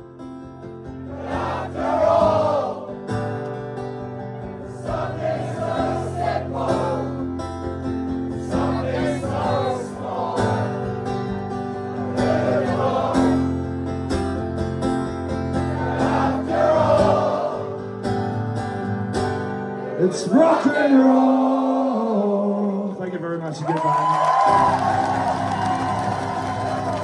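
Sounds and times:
strummed acoustic guitar: 0:00.0 - 0:21.1
crowd singing: 0:00.8 - 0:14.0, 0:15.3 - 0:18.4, 0:19.3 - 0:23.0.

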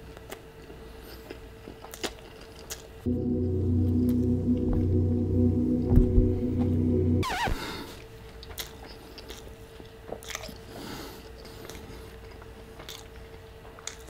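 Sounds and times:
man chewing food: 0:00.0 - 0:03.0, 0:08.2 - 0:14.0
faint steady hum: 0:00.0 - 0:14.0.

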